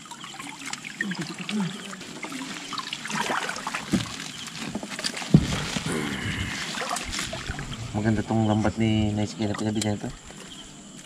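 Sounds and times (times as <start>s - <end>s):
water sloshing and trickling: 0.0s - 11.0s.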